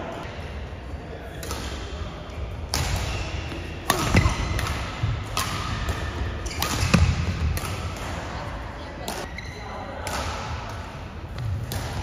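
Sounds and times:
rackets hitting shuttlecock: 1.4s - 2.0s, 2.6s - 8.4s, 9.0s - 9.3s, 9.9s - 12.0s.

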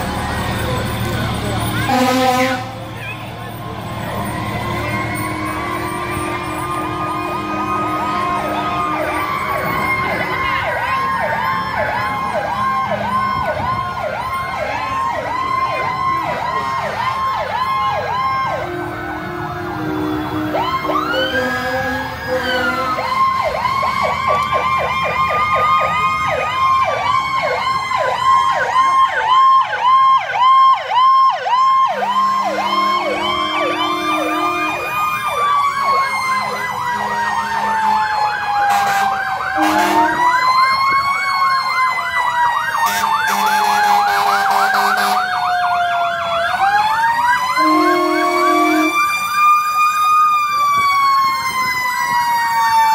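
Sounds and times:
fire truck sirens wailing: 0.0s - 52.9s
low horn blasts: 1.3s - 2.9s, 4.4s - 10.1s, 18.5s - 23.2s, 31.9s - 40.4s, 47.6s - 49.0s.

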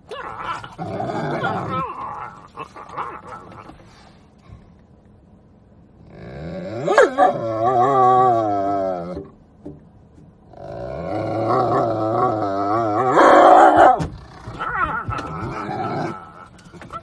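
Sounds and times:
dog growling howl: 0.0s - 3.8s, 6.0s - 9.3s, 10.5s - 17.0s.

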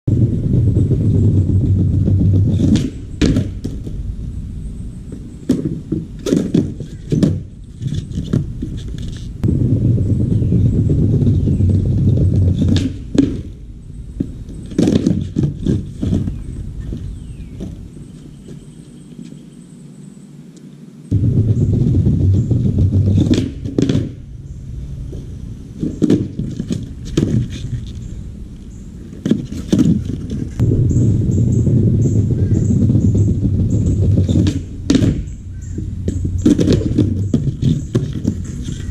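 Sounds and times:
skateboard wheels rolling on pavers: 0.0s - 19.6s, 21.1s - 38.9s
skateboard knocking and clacking: 0.1s - 4.0s, 5.2s - 9.3s, 10.2s - 13.6s, 14.2s - 17.8s, 21.1s - 24.3s, 25.1s - 28.0s, 29.0s - 30.7s, 31.5s - 38.9s.

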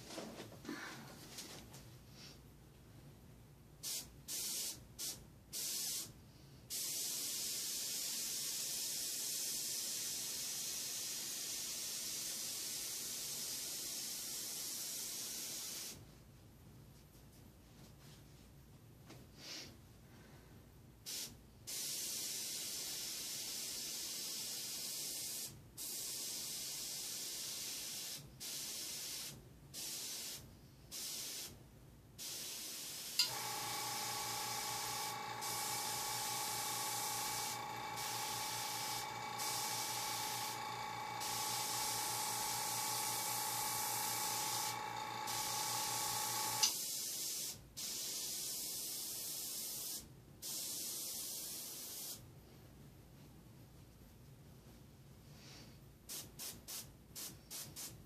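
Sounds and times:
airbrush air hiss: 3.8s - 16.0s, 21.1s - 31.6s, 32.2s - 52.2s, 55.4s - 58.0s
air compressor humming: 33.2s - 46.8s.

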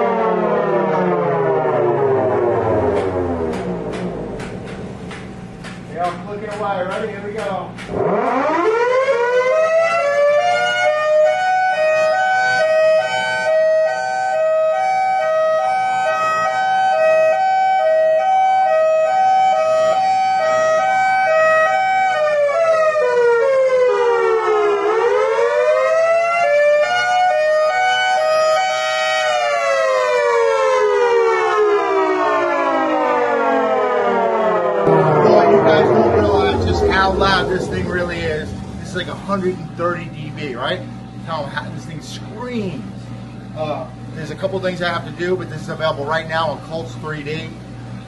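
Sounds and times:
dual-tone siren wailing: 0.0s - 4.7s, 7.9s - 40.1s.

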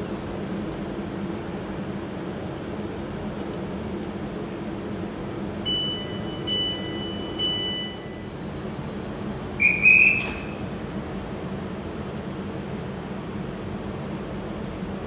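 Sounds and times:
steady train hum: 0.0s - 15.0s
high door warning beeps: 5.7s - 8.3s, 9.6s - 10.6s
trilling whistle blast: 9.6s - 10.6s.

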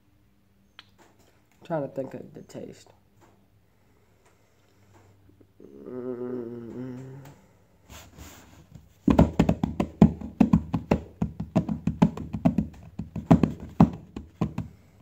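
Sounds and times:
fingers drumming on wooden table: 9.1s - 14.7s.

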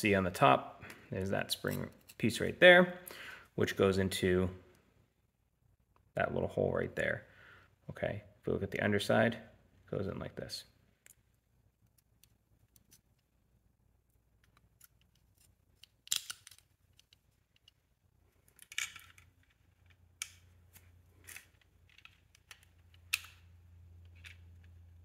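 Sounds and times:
plastic and metal parts clicking: 14.4s - 17.8s.

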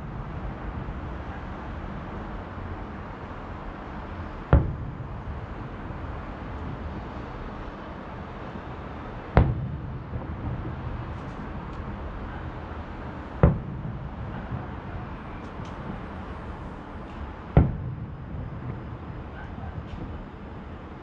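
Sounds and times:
low background rumble: 0.0s - 21.0s
distant firework shells bursting: 4.4s - 20.4s.

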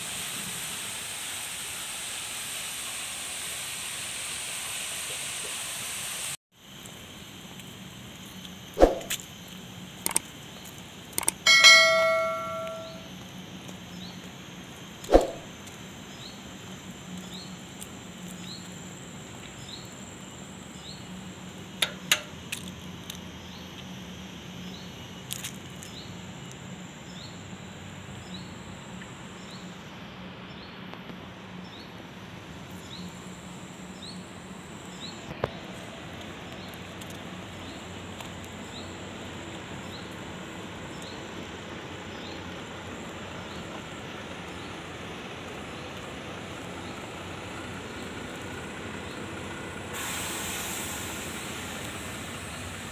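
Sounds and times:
traffic hum: 6.6s - 29.4s, 30.0s - 52.9s
faint high chirp: 11.5s - 13.1s
metallic bell-like ring: 11.5s - 13.1s.

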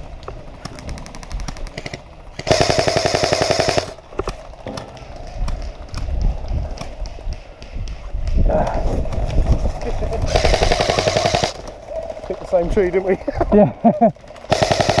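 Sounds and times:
airsoft rifle full auto bursts: 1.8s - 4.0s, 10.3s - 11.6s, 14.5s - 15.0s.

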